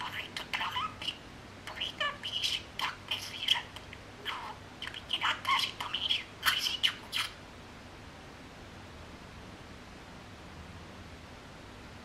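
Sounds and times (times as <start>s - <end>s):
budgerigar chattering: 0.0s - 7.4s.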